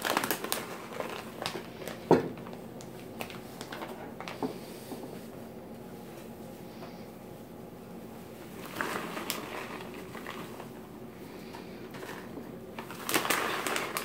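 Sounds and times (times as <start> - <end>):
plastic bag crinkling: 0.0 - 4.8, 8.3 - 14.0.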